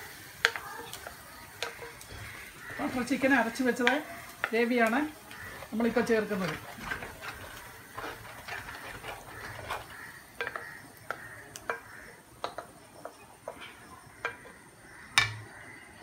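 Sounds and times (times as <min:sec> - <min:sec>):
spatula taps on pan: 0:00.4 - 0:05.5, 0:10.4 - 0:13.6, 0:14.2 - 0:15.5
wooden spatula scraping paste: 0:00.4 - 0:14.6.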